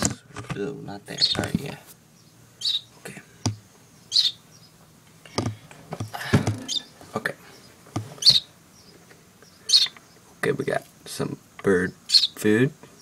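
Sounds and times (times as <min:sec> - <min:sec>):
baby bird begging chirps: 0:01.2 - 0:01.5, 0:02.1 - 0:04.8, 0:06.6 - 0:07.0, 0:07.6 - 0:10.3, 0:11.9 - 0:12.4
dull knocks and rustles: 0:05.3 - 0:06.8, 0:07.8 - 0:08.4.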